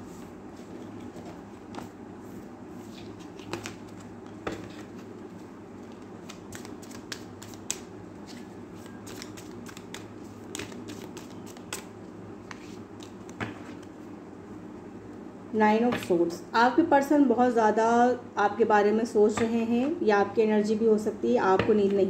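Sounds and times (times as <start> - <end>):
steady low hum: 0.0 - 22.0
cards being shuffled: 2.8 - 14.0.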